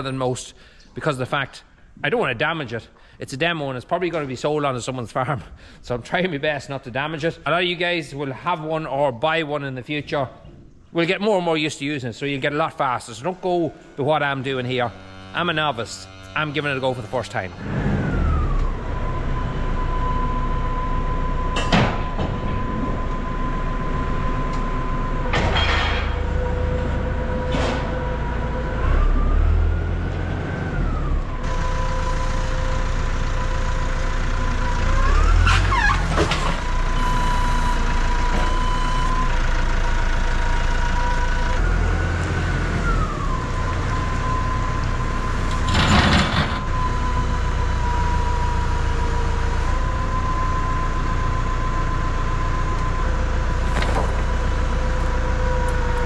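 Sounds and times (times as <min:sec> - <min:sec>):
tractor engine whining and revving: 0:10.4 - 0:56.0
metal clunks: 0:21.5 - 0:22.8, 0:25.3 - 0:26.4.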